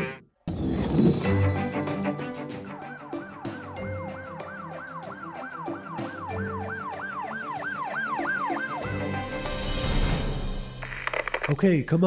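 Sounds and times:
toy police siren wailing: 2.8 - 8.8.

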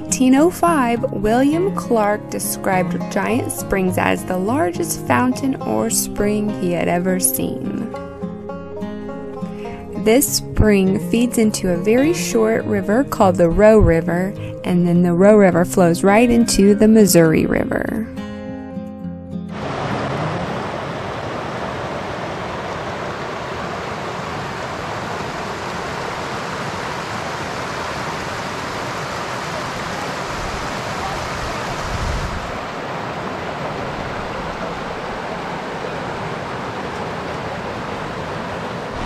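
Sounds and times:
water rushing over rocks: 19.5 - 39.0.

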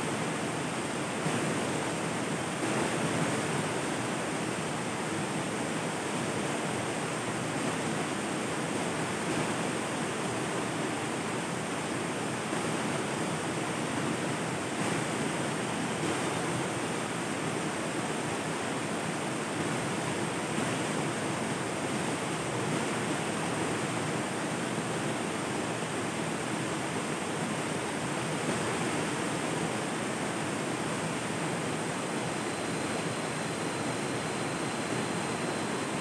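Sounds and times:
river water rushing: 0.1 - 36.0.

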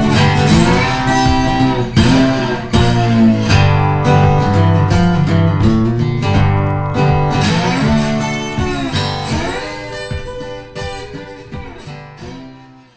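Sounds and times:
strummed acoustic guitar: 0.0 - 12.9.

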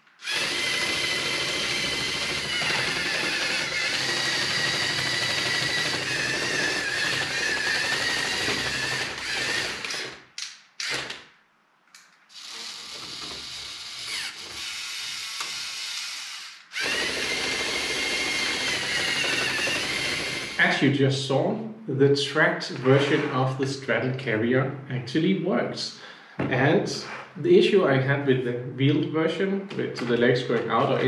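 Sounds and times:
electric motors and gears whining: 0.0 - 10.2, 12.3 - 20.7.

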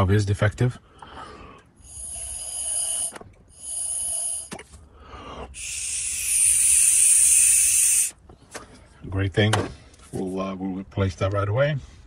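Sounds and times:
air hissing through valve: 1.8 - 4.6, 5.6 - 8.2.

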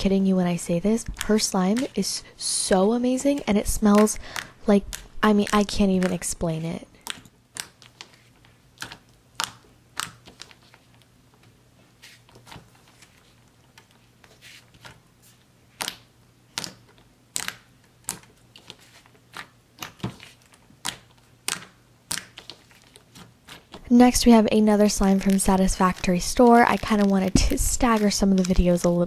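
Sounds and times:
slime clicking and popping: 3.4 - 6.3, 8.8 - 10.5, 15.8 - 18.3, 20.8 - 22.6.

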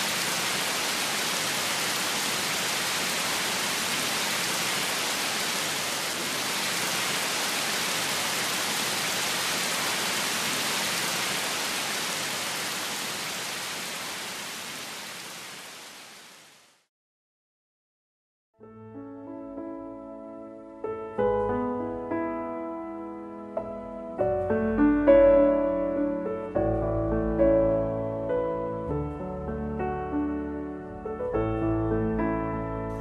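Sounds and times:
water rushing: 0.0 - 16.7.

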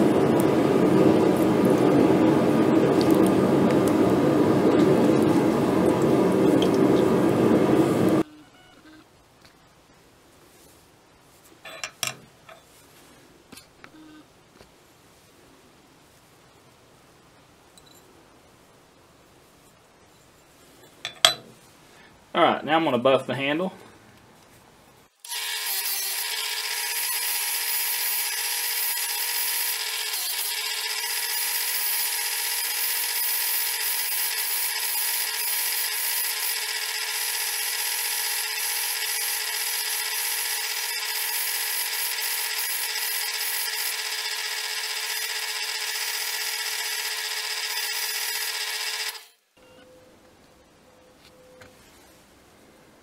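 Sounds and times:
buffing wheel spinning with whine: 26.2 - 49.3.

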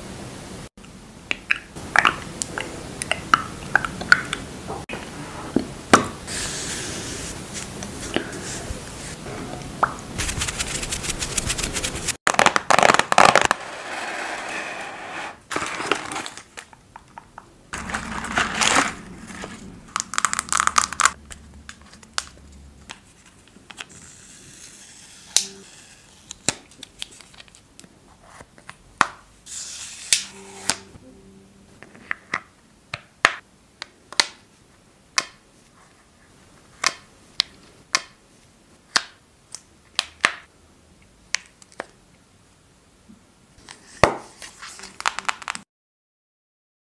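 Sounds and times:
cardboard box rustling: 17.8 - 19.6.

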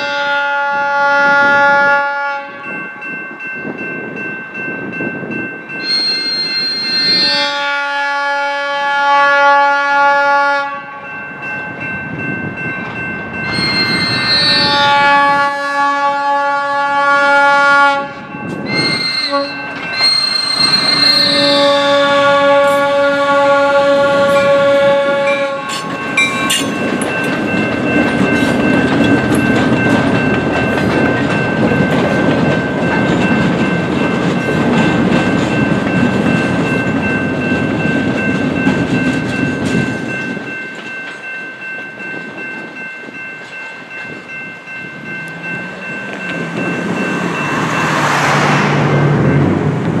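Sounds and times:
locomotive air horn: 0.0 - 2.8, 7.0 - 11.0, 14.0 - 25.9
crossing bell ringing: 0.0 - 50.0
rumble of train wheels: 0.0 - 50.0
rushing sound: 44.8 - 50.0.

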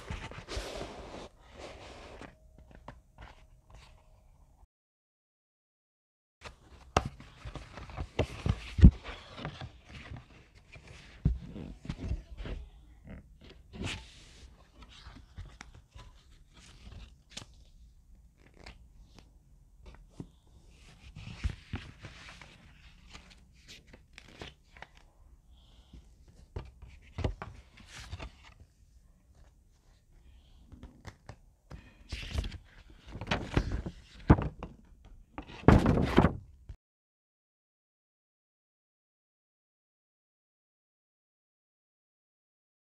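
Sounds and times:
cardboard and paper rustling: 0.0 - 4.1, 6.4 - 17.8, 19.9 - 25.1, 25.9 - 30.0, 30.7 - 34.8, 35.4 - 36.5.

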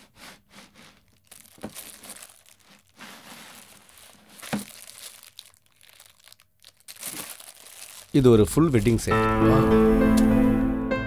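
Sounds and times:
album pages crinkling: 0.7 - 9.1.

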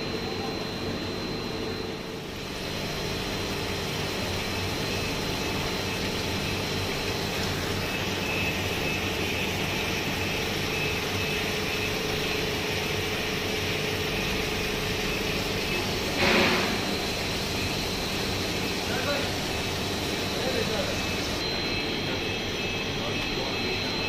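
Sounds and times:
loud burst of noise: 16.1 - 17.7.

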